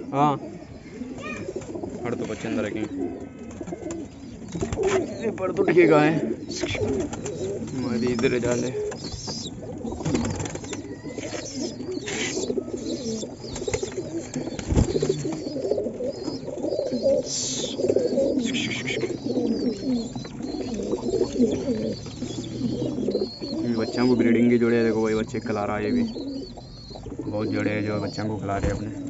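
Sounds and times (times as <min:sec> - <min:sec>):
birds rustling: 0:00.0 - 0:29.0
pigeons cooing: 0:00.0 - 0:29.0.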